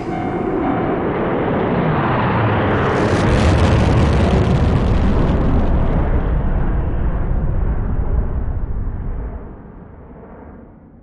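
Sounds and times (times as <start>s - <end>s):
rushing noise: 0.0s - 2.0s
deep explosion rumble: 0.0s - 9.9s.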